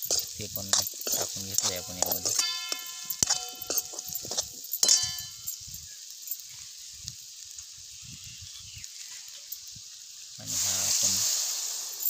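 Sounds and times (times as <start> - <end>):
vegetables sizzling in oil: 0.0 - 12.0
ladle clinking on metal pan: 0.1 - 5.6.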